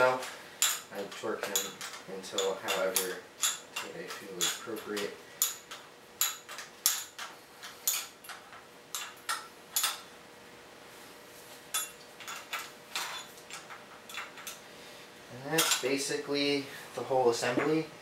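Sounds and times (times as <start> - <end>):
wrench clinking on metal nuts: 0.0 - 10.1, 15.5 - 16.0
faint steady hum: 0.0 - 18.0.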